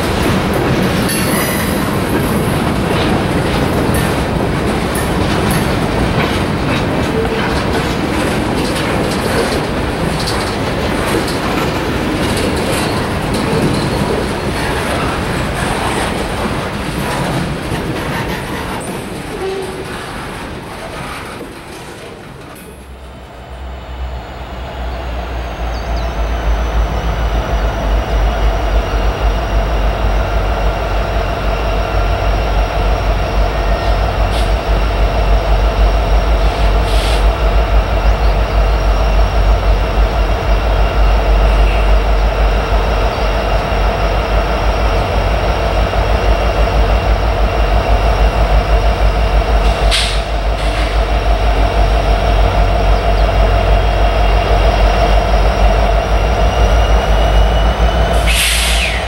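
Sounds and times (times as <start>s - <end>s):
locomotive engine rumble: 0.0s - 59.0s
brief hisses: 58.2s - 59.0s.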